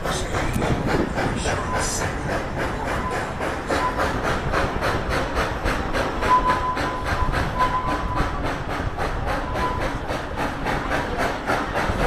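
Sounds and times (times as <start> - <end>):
steam locomotive chuffing: 0.0 - 12.0
wheels clattering on rails: 0.0 - 12.0.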